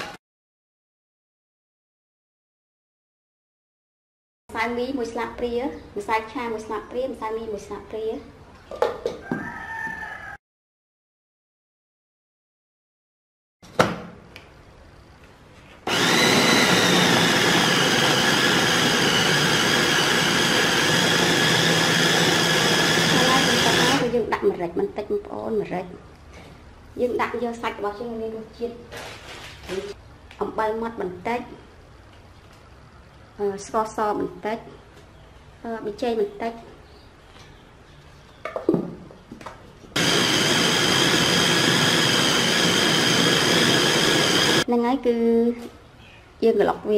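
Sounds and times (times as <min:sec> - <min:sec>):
electric meat chopper whining: 0:15.9 - 0:24.1, 0:40.0 - 0:44.7.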